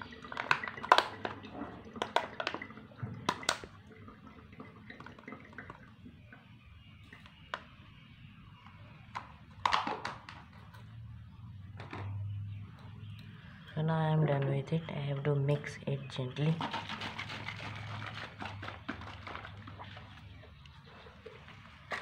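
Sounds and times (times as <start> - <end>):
water pouring into a funnel: 0.0 - 7.6, 16.6 - 22.0.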